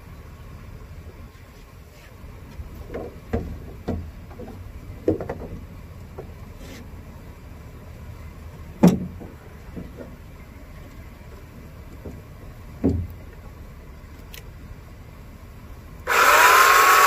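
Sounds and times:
steady low rumble: 0.0 - 16.1
handling knocks and clunks: 2.4 - 6.9, 8.7 - 11.1, 11.9 - 13.5.

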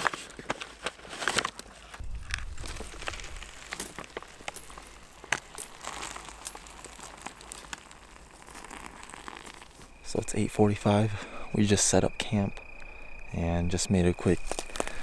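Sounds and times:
foil pouch crinkling: 0.0 - 10.1, 14.4 - 15.0
water pouring into pouch: 2.2 - 10.1.

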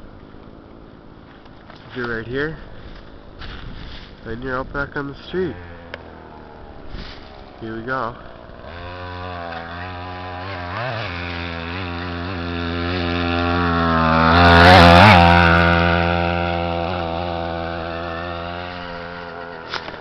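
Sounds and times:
scooter two-stroke engine passing: 5.2 - 20.0.

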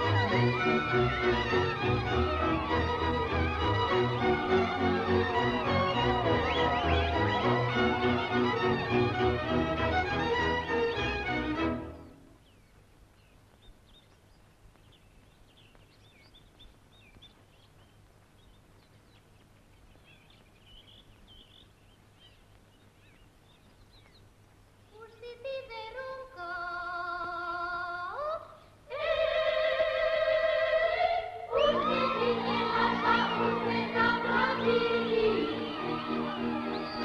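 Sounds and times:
folk string music: 0.0 - 12.4, 28.9 - 37.0.

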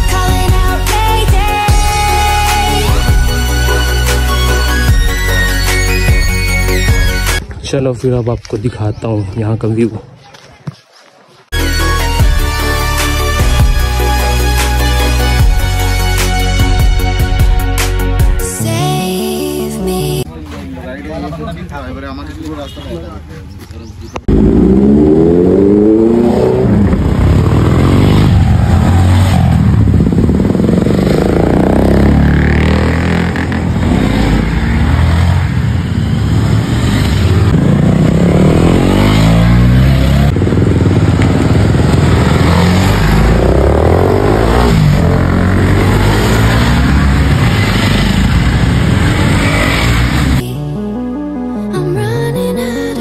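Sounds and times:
motorcycles passing by: 20.8 - 50.4.

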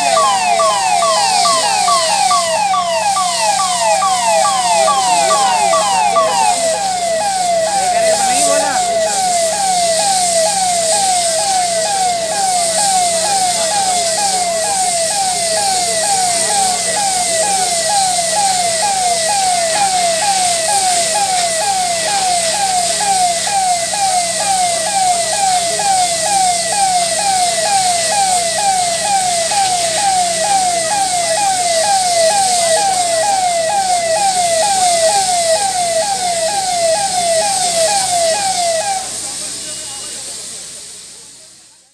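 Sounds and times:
emergency vehicle siren: 0.0 - 40.3
constant hiss: 0.0 - 41.9.

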